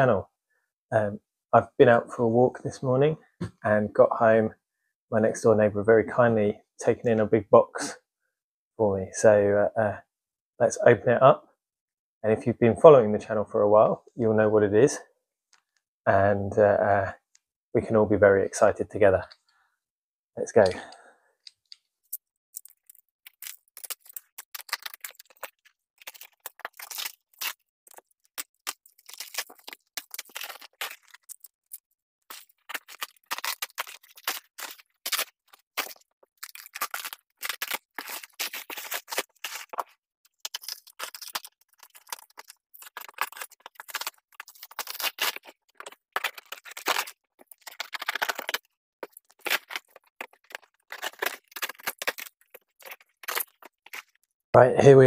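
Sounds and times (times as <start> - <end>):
plastic rustling and tearing: 21.6 - 54.3.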